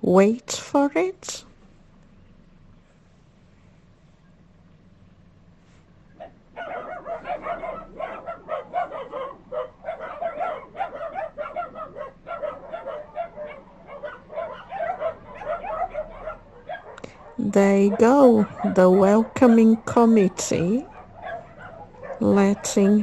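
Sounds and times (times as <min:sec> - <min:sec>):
many dogs barking: 0:06.1 - 0:23.0.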